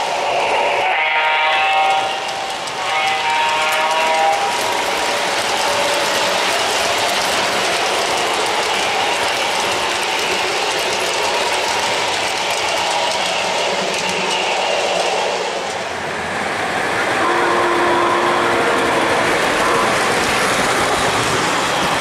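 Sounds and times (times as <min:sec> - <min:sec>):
model train wheels rumbling: 0:00.0 - 0:22.0
clicking over rail joints: 0:02.0 - 0:16.0.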